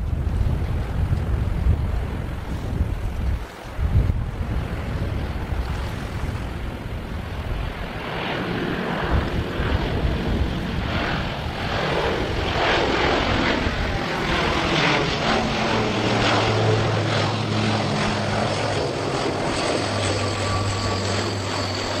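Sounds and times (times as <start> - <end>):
low propeller drone: 0.0 - 22.0
turboprop aircraft passing overhead: 0.0 - 22.0.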